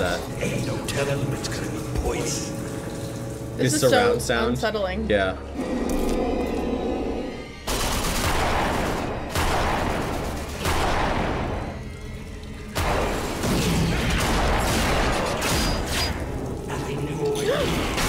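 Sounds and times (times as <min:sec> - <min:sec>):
video game gunfire blasts: 0:07.7 - 0:11.8.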